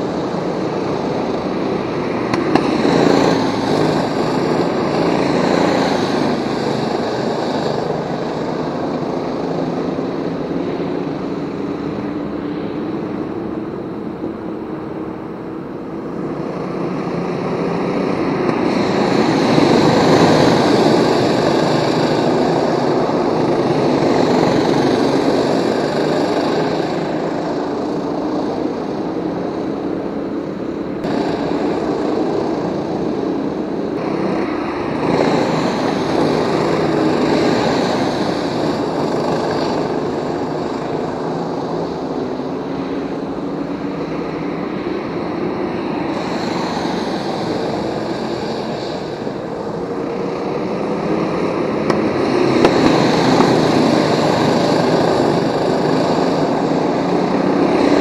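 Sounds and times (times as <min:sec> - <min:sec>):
go-kart engines: 0:00.0 - 0:58.0.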